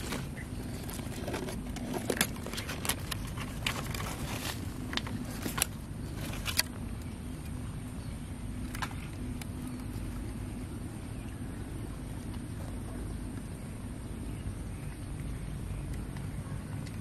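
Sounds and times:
dry leaves and twigs crackling: 0.0 - 13.5
steady low rumble: 0.0 - 17.0.

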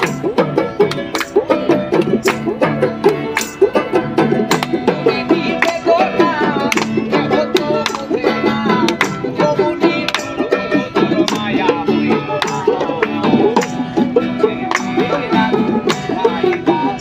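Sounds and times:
hand drums: 0.0 - 17.0
plucked banjo: 0.0 - 17.0
man singing: 4.7 - 17.0.

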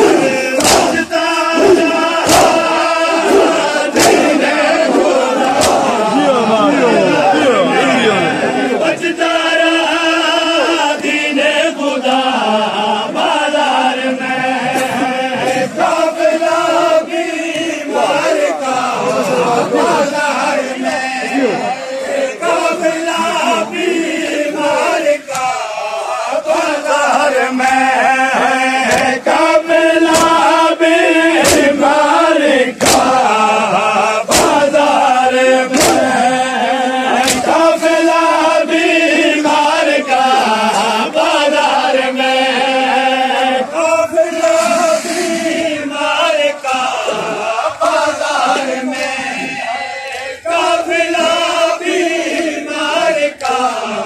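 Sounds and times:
hands slapping chests: 0.0 - 4.5, 5.4 - 6.1, 25.3 - 25.6, 28.9 - 29.2, 30.0 - 30.4, 31.4 - 31.8, 32.8 - 33.2, 34.3 - 34.7, 35.7 - 36.2, 37.1 - 37.6
men chanting in unison: 0.0 - 54.0.

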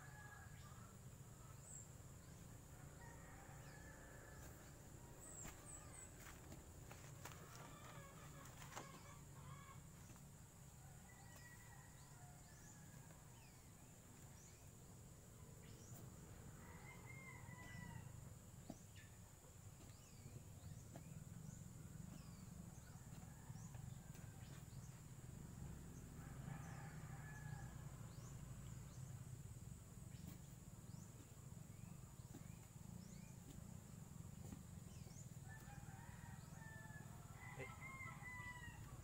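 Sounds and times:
faint rooster crowing: 2.7 - 10.1, 10.8 - 13.5, 16.5 - 18.2, 25.9 - 29.0, 34.4 - 39.0.

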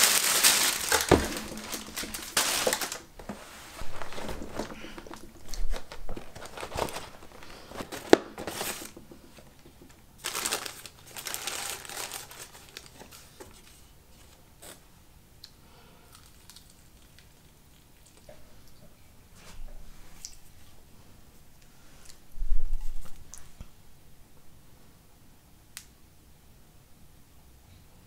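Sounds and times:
packaging crinkling and tearing: 0.0 - 9.6, 10.2 - 14.8, 16.1 - 18.2.

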